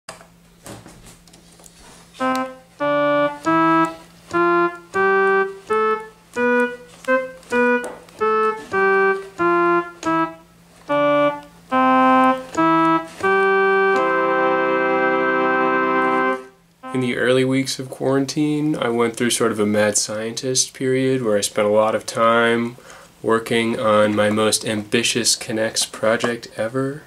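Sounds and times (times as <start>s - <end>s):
electronic keyboard organ melody: 2.2s - 17.5s.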